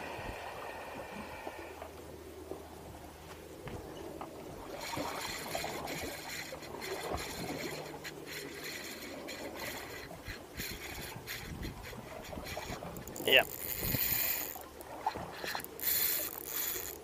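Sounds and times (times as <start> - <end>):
water lapping against boat hull: 3.6 - 17.0.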